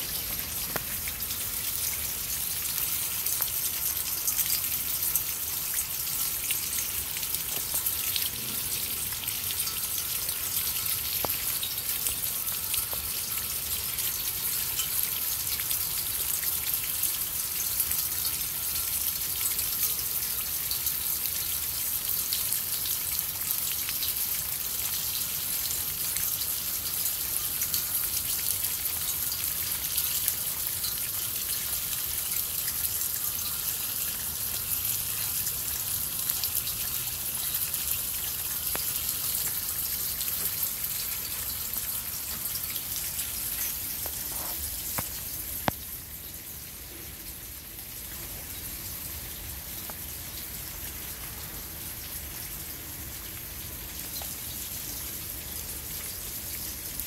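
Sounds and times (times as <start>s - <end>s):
steady rain: 0.0s - 57.0s
water drips: 0.0s - 57.0s
water splashing down rain chain: 0.0s - 57.0s.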